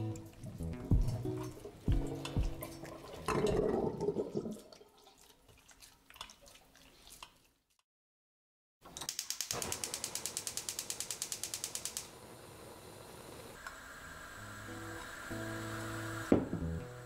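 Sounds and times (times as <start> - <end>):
water dripping: 0.0 - 7.6
wet squelching: 4.3 - 7.8.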